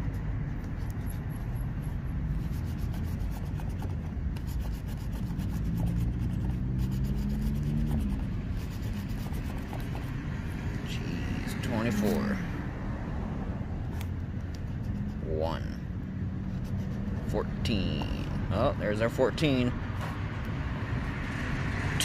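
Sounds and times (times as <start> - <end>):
coin scratching lottery ticket: 0.0 - 10.2, 14.6 - 15.4, 16.4 - 18.4
low vehicle engine hum: 0.0 - 22.0.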